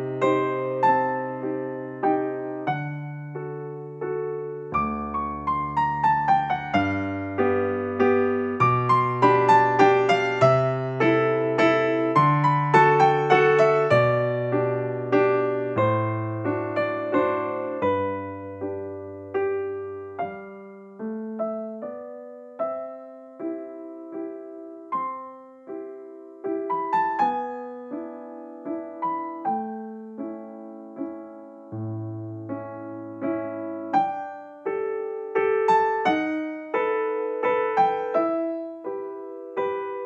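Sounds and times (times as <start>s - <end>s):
slow piano music: 0.0s - 40.0s.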